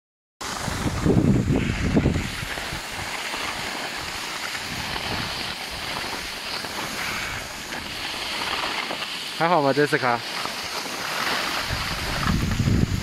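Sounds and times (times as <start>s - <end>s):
skis scraping over snow: 0.4s - 13.0s
wind buffeting microphone: 0.5s - 8.6s, 11.5s - 13.0s.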